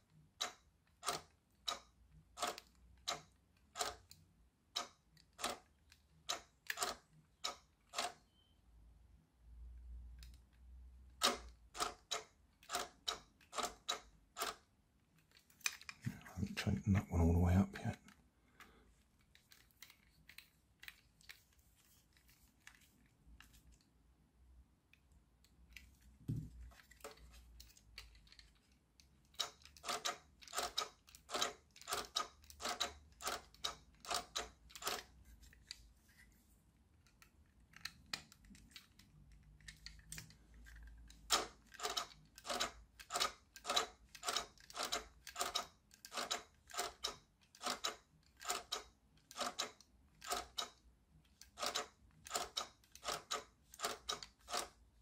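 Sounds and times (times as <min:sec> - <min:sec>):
sharp plastic clicks: 0:11.1 - 0:16.1.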